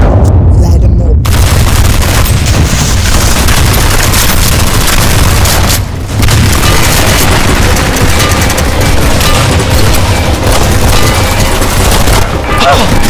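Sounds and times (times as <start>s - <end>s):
heavy low boom: 0.0s - 3.2s
rapid gunfire: 1.2s - 13.0s.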